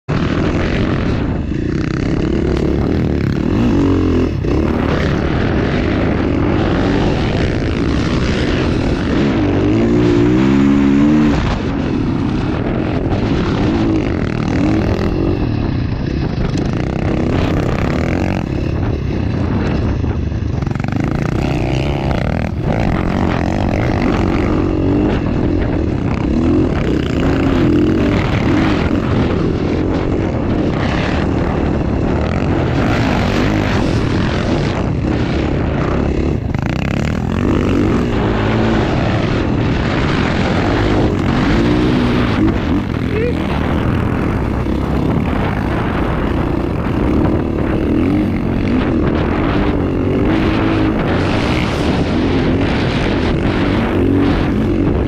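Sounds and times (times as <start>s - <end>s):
dirt bike engine running hard: 0.0s - 55.0s
steady rushing noise: 0.0s - 55.0s.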